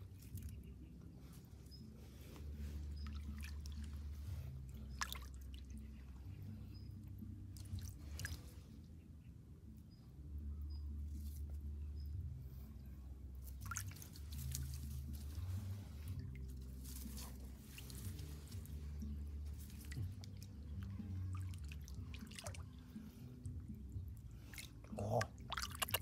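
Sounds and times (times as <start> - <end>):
low steady rumble: 0.0 - 25.7
water drips: 2.9 - 8.6, 13.4 - 26.0
hands splashing through water: 13.5 - 16.0, 16.6 - 22.8, 24.5 - 26.0.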